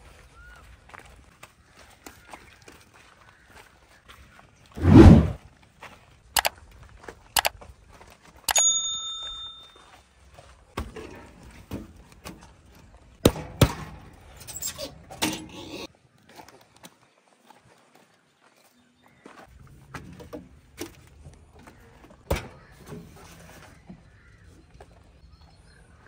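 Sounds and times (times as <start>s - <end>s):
short ringing ding: 8.5s - 9.9s.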